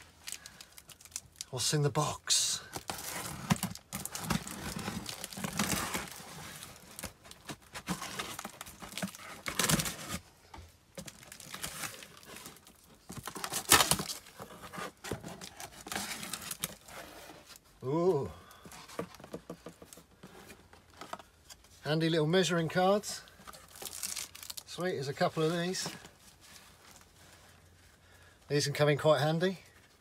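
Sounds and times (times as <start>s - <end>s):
cardboard scraping and rustling: 2.8s - 10.3s, 11.0s - 17.6s
packing tape being ripped: 13.3s - 14.2s.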